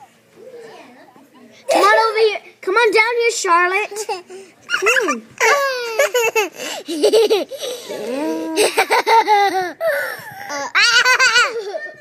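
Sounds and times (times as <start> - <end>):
children laughing and squealing: 4.0 - 12.0.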